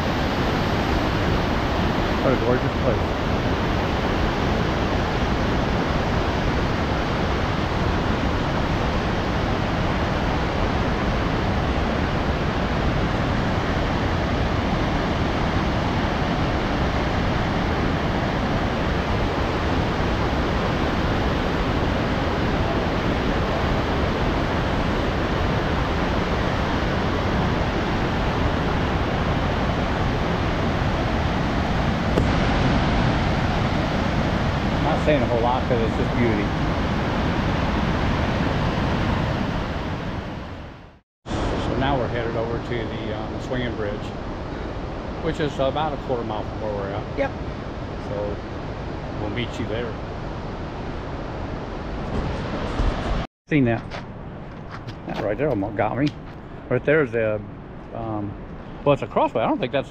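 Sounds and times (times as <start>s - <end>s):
waterfall roaring: 0.0s - 40.7s.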